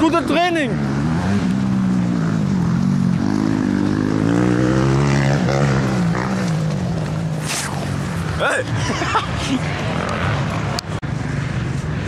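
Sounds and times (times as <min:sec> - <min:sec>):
motorbike engine revving: 0:00.0 - 0:11.0
brief rush of noise: 0:07.4 - 0:08.0.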